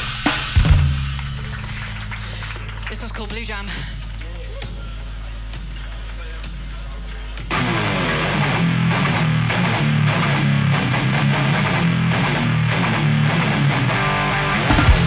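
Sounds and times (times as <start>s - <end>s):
heavy drum hits: 0.0s - 1.8s, 14.7s - 15.0s
electric guitar riff: 7.5s - 15.0s.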